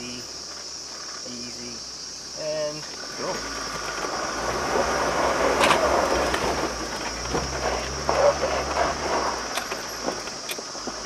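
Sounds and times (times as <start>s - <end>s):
tyres crunching over loose stones: 2.8s - 11.0s.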